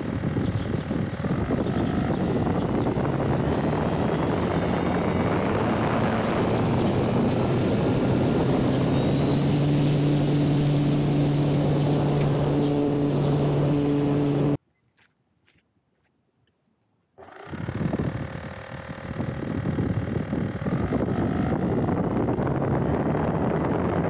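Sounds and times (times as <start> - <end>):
electric motor whine: 0.0 - 14.6, 17.2 - 24.0
propeller hum: 0.0 - 14.6, 17.2 - 24.0
rushing noise: 1.2 - 14.6.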